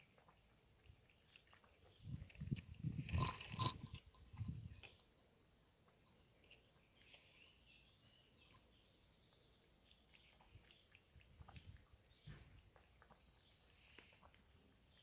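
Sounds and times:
cat lapping milk: 0.0s - 3.7s.

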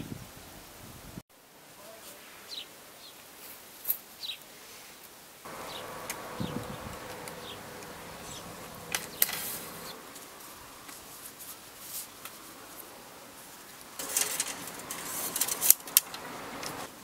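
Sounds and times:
flying insect buzzing: 5.5s - 10.9s.

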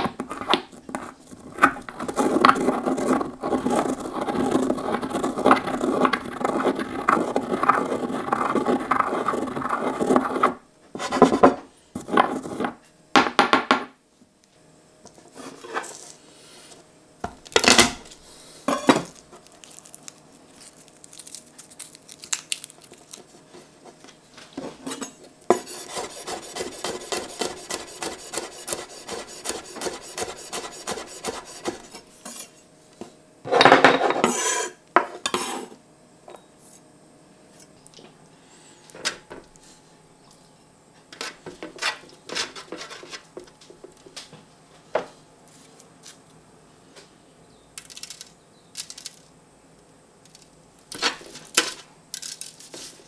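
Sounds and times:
mortar and pestle grinding spices: 0.2s - 10.5s, 25.5s - 32.5s
knife blade scraping board: 0.4s - 12.8s, 24.8s - 32.6s, 33.5s - 35.8s, 41.2s - 43.2s
garlic clove being peeled: 19.1s - 23.4s.

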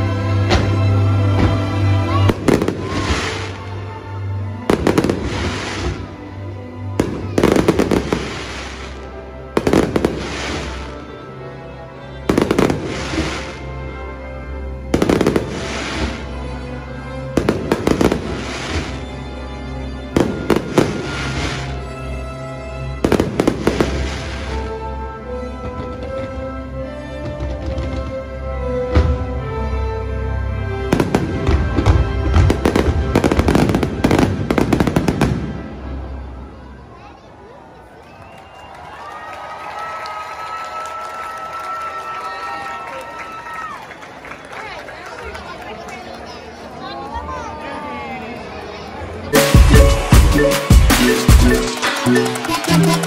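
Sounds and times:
music: 0.0s - 37.1s, 49.2s - 53.0s
fireworks bangs: 0.5s - 3.7s, 4.7s - 6.1s, 9.6s - 10.9s
fireworks crackle: 2.2s - 3.8s, 4.7s - 6.1s, 7.0s - 11.0s, 12.4s - 13.6s, 15.0s - 16.3s, 17.4s - 19.1s, 20.2s - 21.8s, 23.0s - 24.7s, 50.4s - 53.0s
show music: 49.3s - 53.0s.

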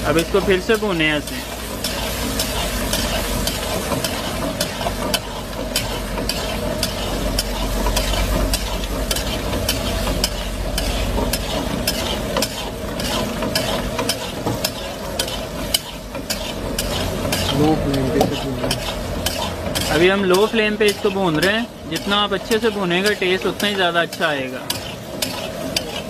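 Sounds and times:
meat sizzling: 0.0s - 26.0s
spoon scraping against pan: 0.0s - 26.0s.

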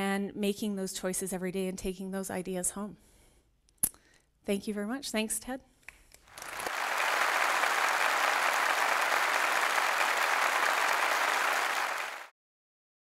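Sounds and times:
audience applauding: 6.3s - 12.3s.

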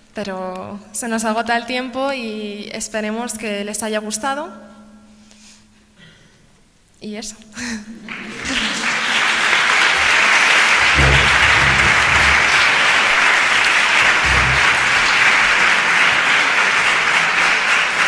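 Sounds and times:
large audience applauding: 8.1s - 18.0s.

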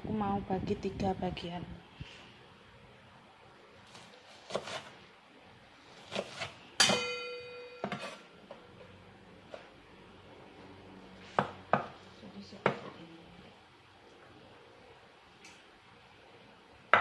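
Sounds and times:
bright metallic ring: 6.8s - 8.2s.

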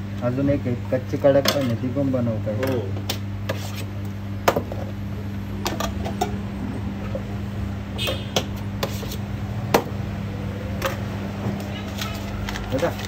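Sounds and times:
steady low hum: 0.0s - 13.0s
metal spoons clinking on steel trays: 1.4s - 1.8s.

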